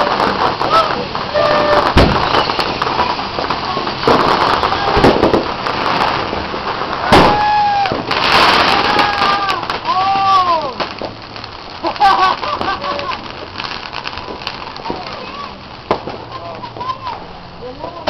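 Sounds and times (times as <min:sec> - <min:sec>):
sharp pops or bangs: 0:00.0 - 0:11.5, 0:14.2 - 0:16.4
tree burning with crackling: 0:00.0 - 0:18.0.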